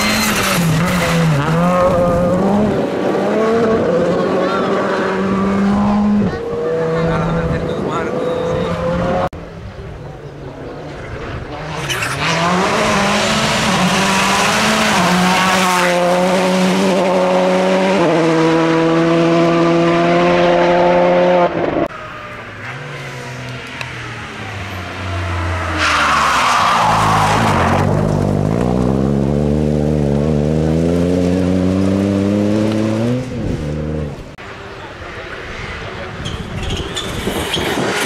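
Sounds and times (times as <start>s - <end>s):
car accelerating hard: 0.0s - 9.3s, 10.8s - 21.9s, 22.6s - 34.4s
rally car engine at high revs: 0.0s - 9.4s, 10.7s - 21.9s, 22.6s - 34.4s.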